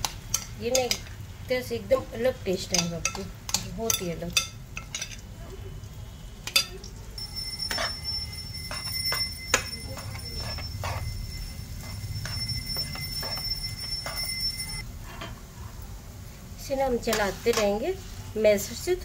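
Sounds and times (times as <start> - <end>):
food frying: 0.0 - 19.0
steady high-pitched tone: 7.2 - 14.8
metal spatula scraping a pan: 7.6 - 15.4.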